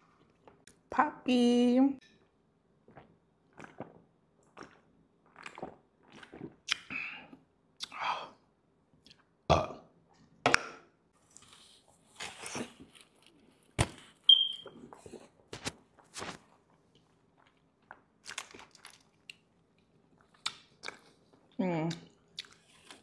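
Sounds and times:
swallowing soda: 2.8s - 8.0s
burp: 9.5s - 9.9s.

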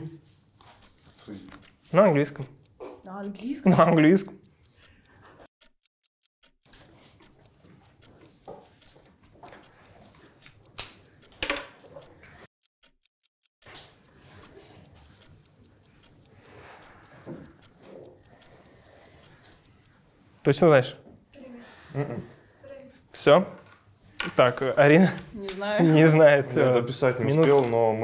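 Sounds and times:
clock ticking: 0.0s - 21.5s.

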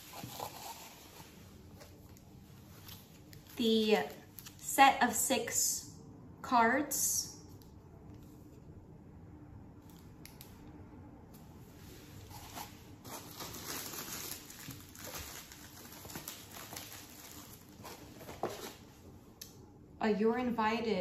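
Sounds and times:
paper and cardboard rustling: 0.0s - 2.0s, 12.0s - 19.0s.

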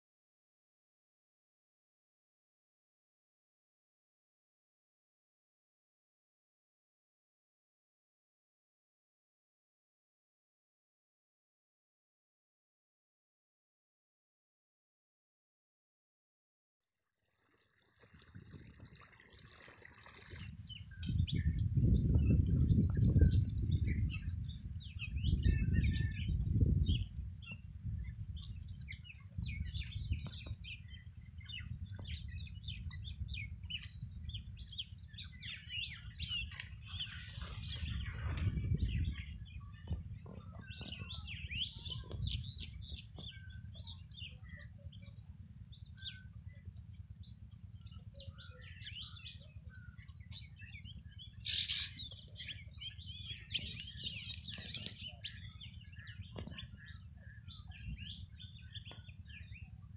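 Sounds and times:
small birds chirping and twittering: 18.0s - 59.9s.

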